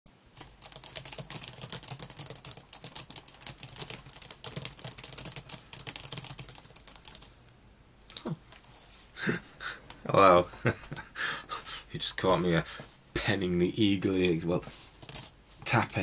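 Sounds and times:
fast keyboard typing: 0.4s - 7.3s, 15.0s - 15.3s.

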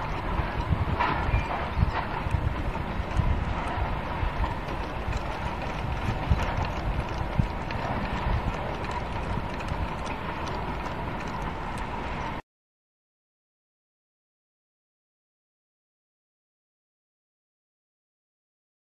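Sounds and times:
wind rumbling on microphone: 0.0s - 12.4s
wooden whirligig clacking: 0.0s - 12.4s.

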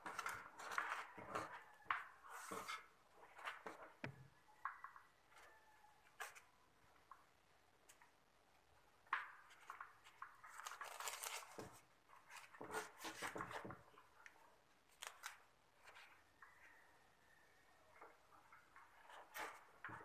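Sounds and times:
crackling rustling of pipes handled: 0.0s - 4.0s, 9.1s - 16.3s, 18.0s - 20.0s.

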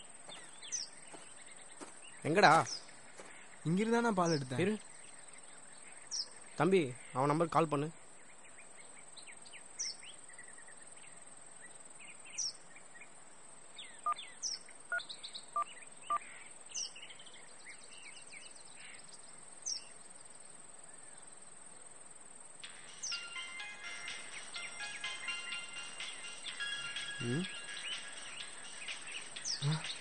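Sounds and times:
birds chirping: 0.0s - 21.2s, 22.6s - 30.0s
clear bird call notes: 22.6s - 30.0s
tune with steady notes: 22.6s - 30.0s.

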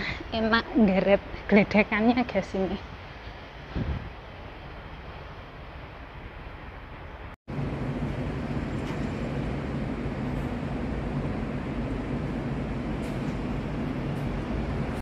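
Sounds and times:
city traffic rumble: 0.0s - 15.0s
low hum: 4.7s - 15.0s.

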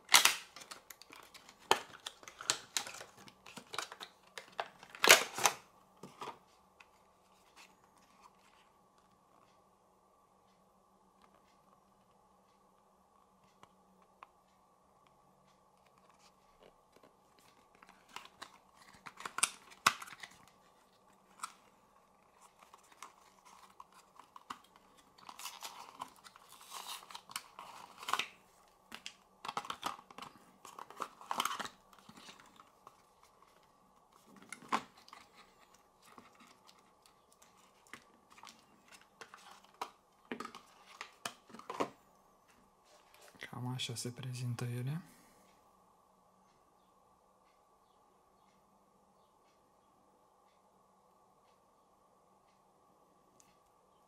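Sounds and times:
cardboard and paper rustling: 0.0s - 6.5s, 16.0s - 42.0s
faint steady hum: 0.0s - 54.0s.

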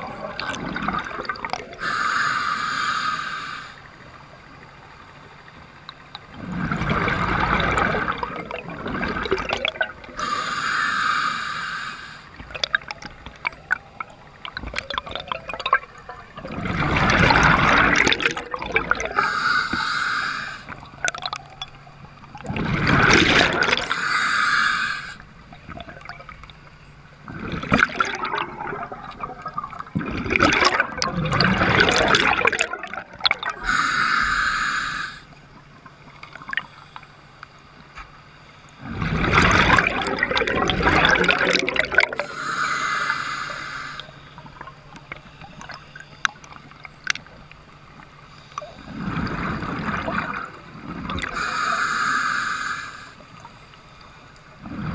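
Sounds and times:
exhaled bubbles gurgling: 0.0s - 4.9s, 5.9s - 36.7s, 38.3s - 53.6s, 54.5s - 54.9s
regulator inhale hiss: 1.8s - 4.0s, 10.2s - 12.4s, 19.0s - 20.8s, 23.7s - 25.3s, 33.6s - 35.4s, 42.2s - 44.4s, 51.3s - 53.4s.

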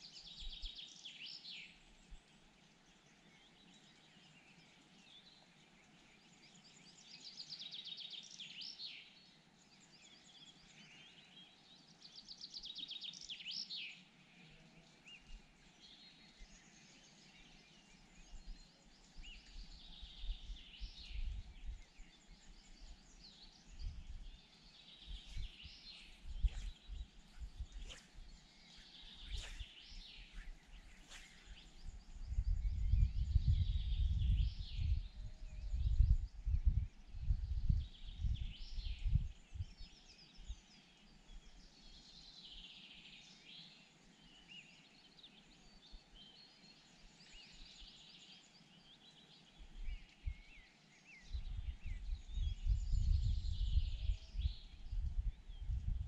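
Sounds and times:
songbirds singing: 0.0s - 56.0s
low rumbling on microphone: 23.7s - 39.8s, 51.2s - 56.0s.

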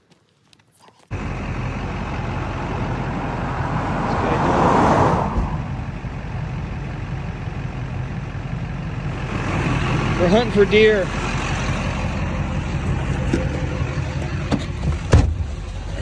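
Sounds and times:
passing vehicle: 1.1s - 16.0s
vehicle engine running: 1.1s - 16.0s.

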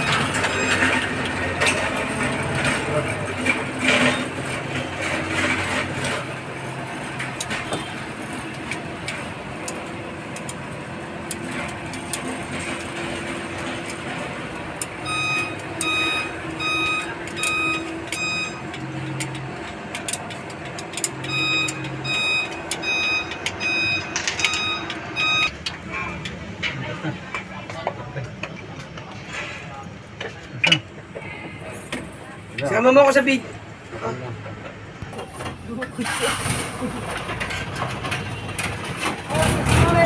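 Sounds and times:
electronic beeps: 15.0s - 18.6s, 21.2s - 25.5s
metal tools clicking and scraping: 17.3s - 26.8s.

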